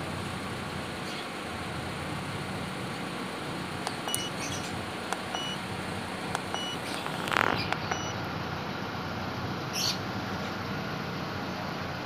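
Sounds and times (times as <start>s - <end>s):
car engine idling: 0.0s - 12.0s
short electronic key beeps: 4.1s - 4.6s, 5.2s - 5.6s, 6.4s - 8.2s.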